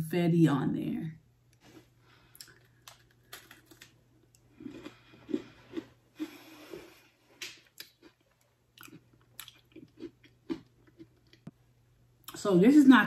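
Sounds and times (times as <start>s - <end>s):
person chewing crunchy cookie: 1.7s - 11.6s.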